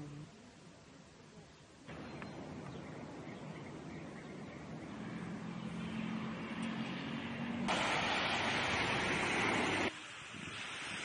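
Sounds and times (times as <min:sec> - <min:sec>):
distant traffic hum: 0:01.8 - 0:11.0
rushing noise: 0:05.8 - 0:11.0.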